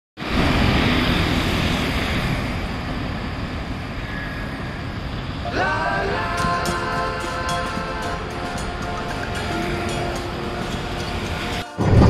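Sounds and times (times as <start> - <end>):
road traffic: 0.2 - 11.8
music with gliding tones: 5.4 - 12.0.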